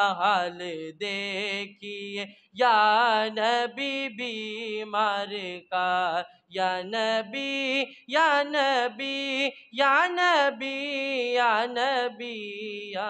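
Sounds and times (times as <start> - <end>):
boy singing unaccompanied: 2.6 - 13.0.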